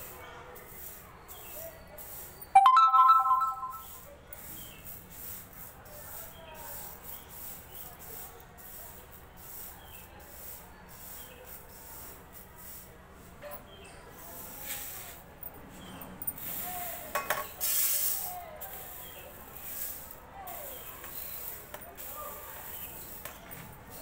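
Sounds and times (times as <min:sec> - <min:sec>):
dry lentils rustling by hand: 0:17.6 - 0:23.3.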